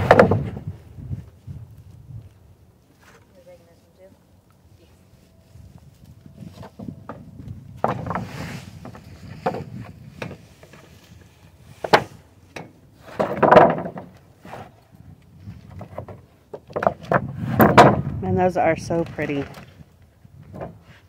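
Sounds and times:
wooden boards knocking: 0:00.0 - 0:00.6, 0:07.8 - 0:10.4, 0:13.1 - 0:14.2, 0:15.8 - 0:18.0.

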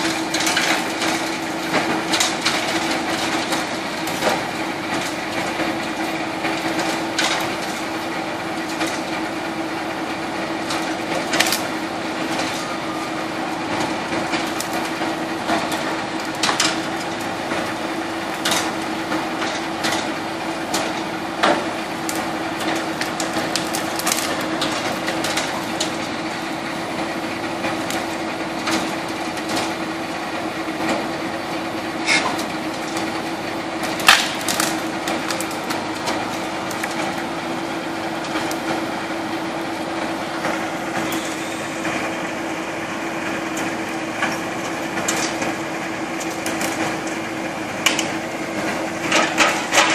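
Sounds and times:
wood chipper hum: 0:00.0 - 0:49.9
branches cracking and splintering: 0:10.7 - 0:17.4, 0:20.7 - 0:26.2, 0:32.0 - 0:38.7, 0:43.5 - 0:47.2.

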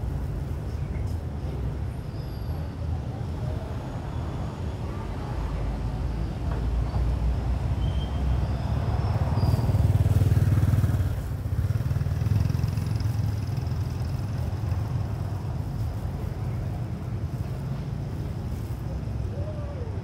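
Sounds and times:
vehicle engine rumbling: 0:06.8 - 0:20.0.

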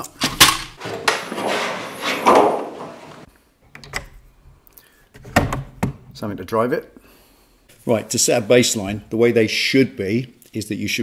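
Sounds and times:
drawer sliding on runners: 0:00.8 - 0:03.3.

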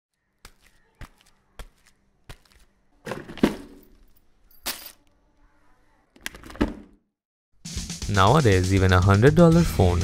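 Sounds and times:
keys dropped into plastic bin: 0:03.4 - 0:05.1.

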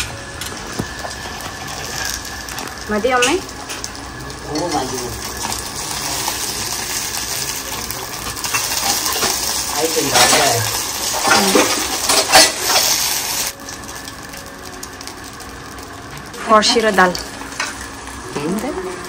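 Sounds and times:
fish sizzling in oil: 0:00.0 - 0:19.0
skimmer scraping and clinking pan: 0:00.4 - 0:13.6.

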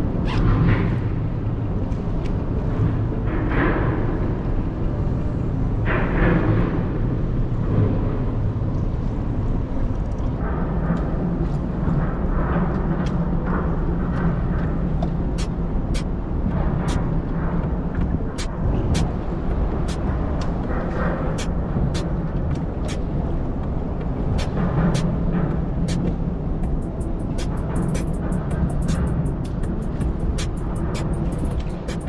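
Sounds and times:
sharp high ticks: 0:25.9 - 0:32.0.

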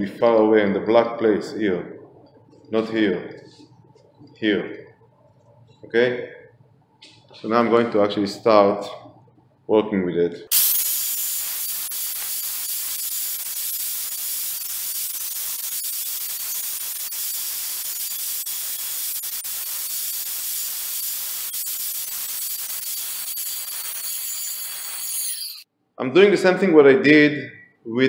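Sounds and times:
angle grinder cutting tile: 0:12.7 - 0:25.7.

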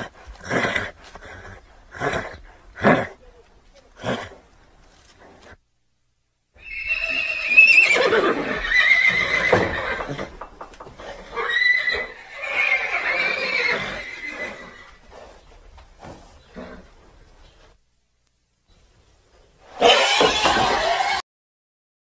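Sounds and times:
horse whinnying: 0:06.6 - 0:15.1, 0:19.7 - 0:21.2.

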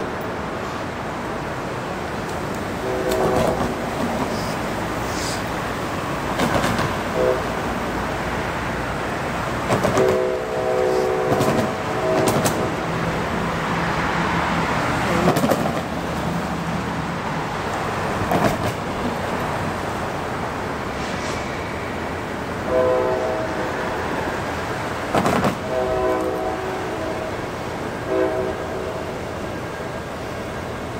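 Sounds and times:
street traffic noise: 0:00.0 - 0:30.9
locomotive air horn: 0:02.8 - 0:05.5, 0:07.1 - 0:07.7, 0:09.9 - 0:12.9, 0:22.6 - 0:24.0, 0:25.6 - 0:27.4, 0:28.0 - 0:29.2.

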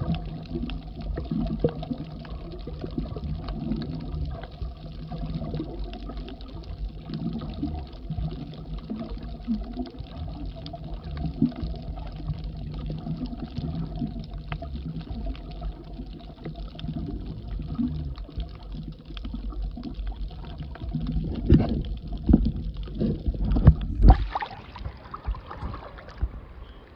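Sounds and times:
faint crackle: 0:00.0 - 0:26.9
low underwater rumble: 0:00.0 - 0:26.9
thumps and splashes: 0:21.2 - 0:26.6.

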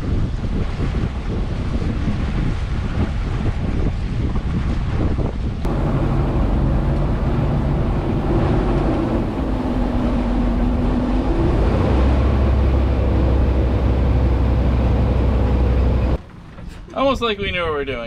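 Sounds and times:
steady rushing noise: 0:00.0 - 0:18.0
deep drone: 0:05.6 - 0:17.0
boat engine running: 0:05.6 - 0:17.6.

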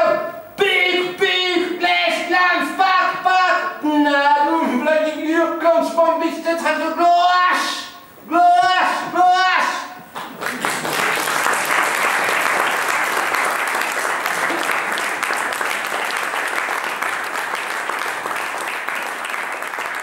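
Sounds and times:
audience applauding: 0:10.1 - 0:20.0.

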